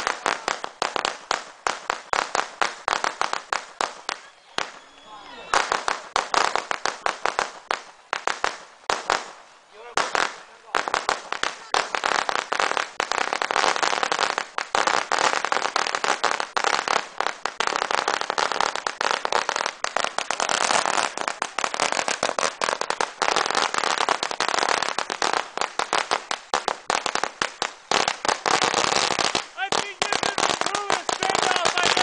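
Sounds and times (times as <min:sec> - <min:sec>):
firecrackers crackling: 0:00.0 - 0:32.0.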